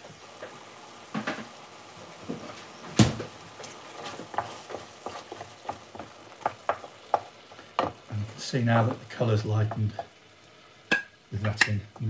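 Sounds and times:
wooden spoon knocking pan: 3.0 - 8.1, 10.9 - 12.0
spoon scraping and tapping pan: 4.0 - 8.0, 9.6 - 10.2, 10.9 - 12.0.

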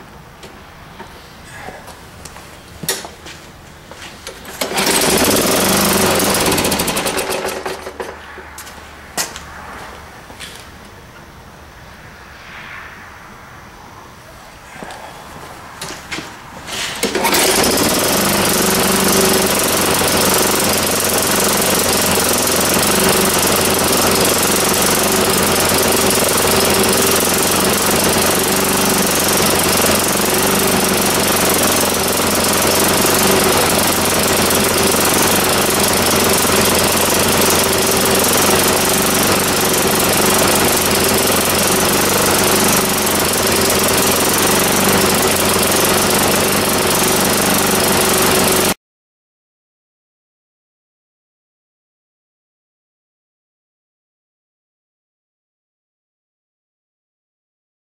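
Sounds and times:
lawnmower engine running: 0.4 - 10.9, 15.8 - 48.8.

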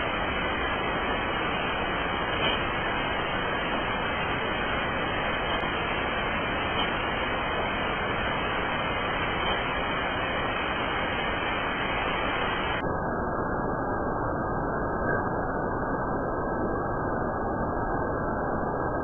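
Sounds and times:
steady hiss-like noise: 0.0 - 18.1.

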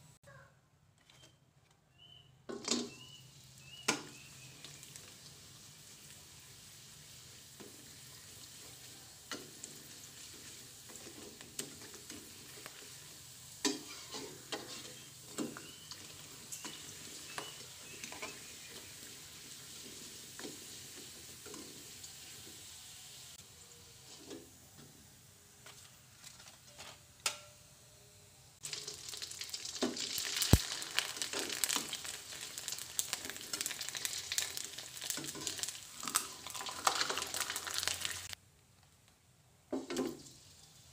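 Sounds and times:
cracker sizzling in oil: 2.9 - 24.6, 28.6 - 38.4.

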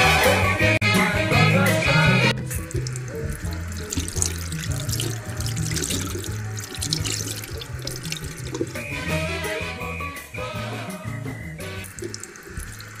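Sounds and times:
hands washing: 2.4 - 9.0, 11.8 - 13.0
tap water running into sink: 2.4 - 9.1, 11.8 - 13.0.

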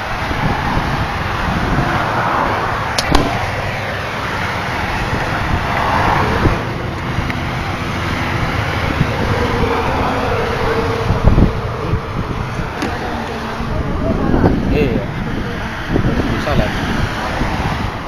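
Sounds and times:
traffic passing at speed: 0.0 - 18.0
sharp clicks: 3.0 - 3.4.

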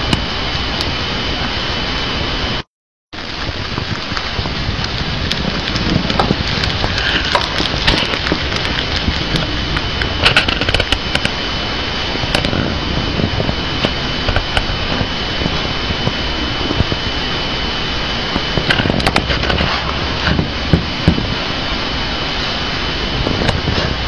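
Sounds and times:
hamster chewing crunchy leaves: 3.4 - 17.0, 18.1 - 21.4.

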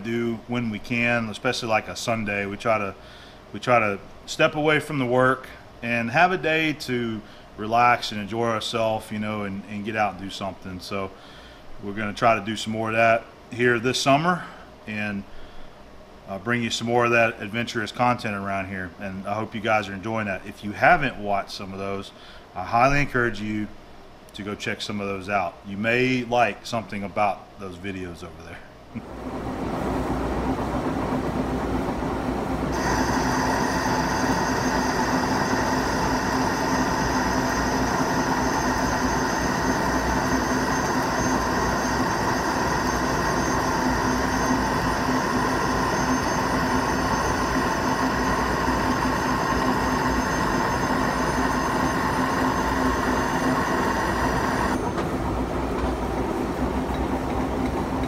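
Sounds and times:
lathe running: 29.0 - 58.0
boring bar cutting steel: 32.7 - 54.8.

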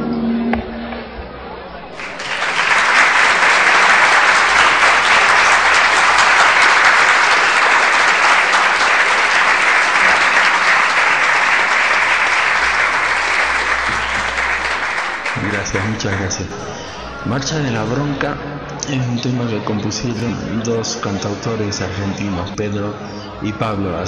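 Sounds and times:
audience applauding: 1.9 - 18.1.

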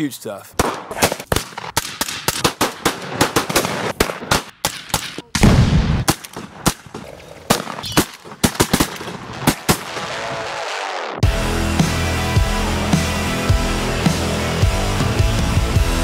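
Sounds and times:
rapid shotgun shots: 0.6 - 10.6
deep loud gun blast: 5.4 - 6.7.

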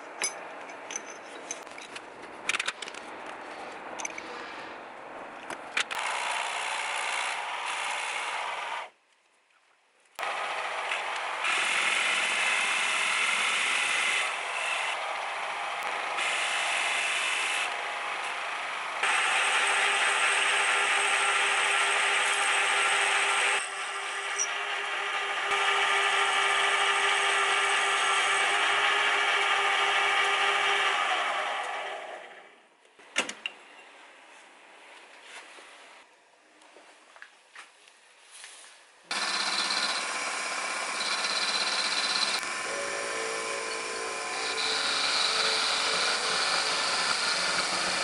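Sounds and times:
lathe motor whine: 10.2 - 32.4, 39.1 - 48.0
lathe tool scraping metal: 39.1 - 48.0.

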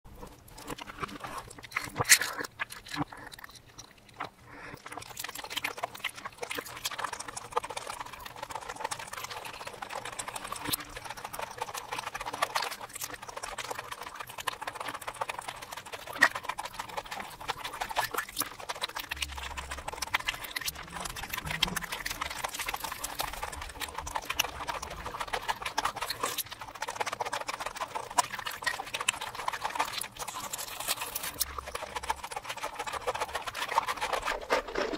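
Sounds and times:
crackling clicks: 0.2 - 34.9
crunching food: 0.2 - 34.9
wet sticky mouth sounds: 0.3 - 7.5, 16.1 - 34.9.

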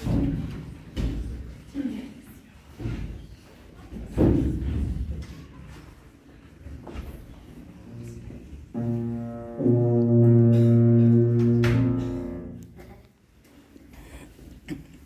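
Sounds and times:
tuba playing long low notes: 7.9 - 12.8.

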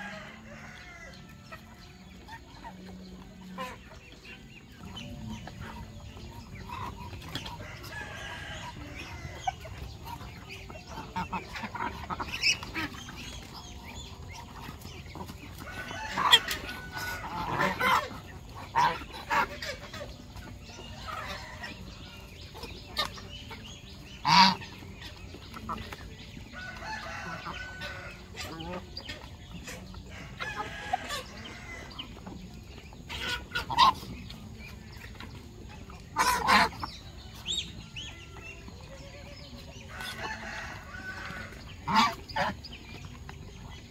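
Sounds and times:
chickens clucking: 0.0 - 43.9
goose honking: 15.2 - 21.8, 24.1 - 24.8, 33.0 - 34.3, 36.1 - 37.0, 40.2 - 42.7.

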